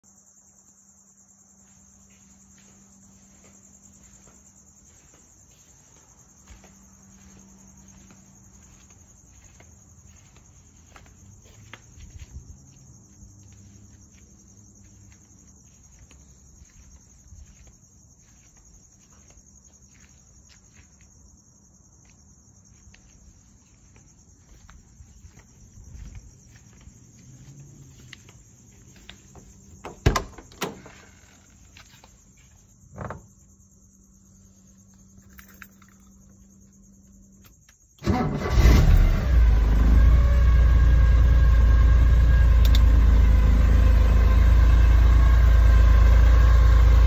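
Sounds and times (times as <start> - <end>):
crickets chirping: 0.0 - 47.0
faint low hum: 1.1 - 20.9
footsteps: 1.5 - 33.4.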